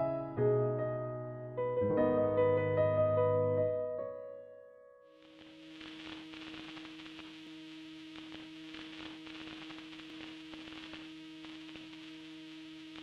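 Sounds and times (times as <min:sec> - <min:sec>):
background music: 0:00.0 - 0:04.7
crackling static and hiss: 0:05.1 - 0:13.0.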